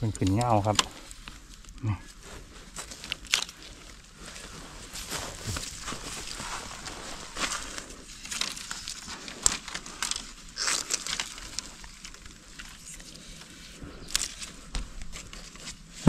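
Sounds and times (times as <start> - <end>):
bamboo stems snapping: 0.0 - 1.8, 2.8 - 3.9, 7.4 - 13.5, 14.1 - 15.8
dry bamboo rustling and crackling: 0.0 - 16.0.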